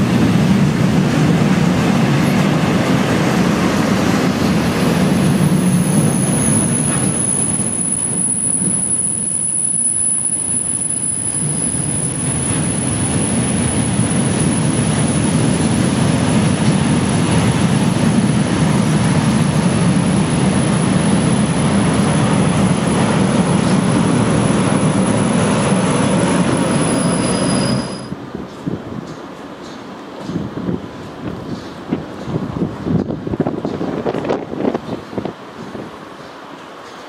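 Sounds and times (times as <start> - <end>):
train wheels rumbling on track: 0.0 - 37.0
high-pitched whine: 4.5 - 28.2.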